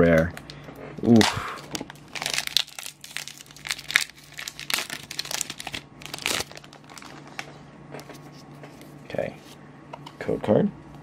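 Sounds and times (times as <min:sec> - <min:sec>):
foil wrapper crinkling: 0:01.6 - 0:07.6.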